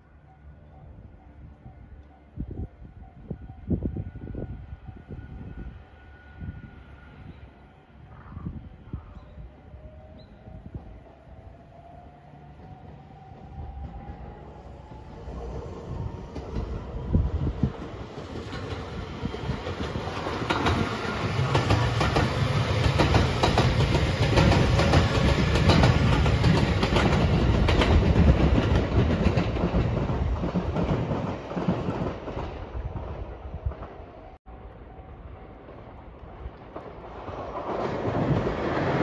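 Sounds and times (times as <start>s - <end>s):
train wheels clattering over rail joints: 17.7s - 32.6s.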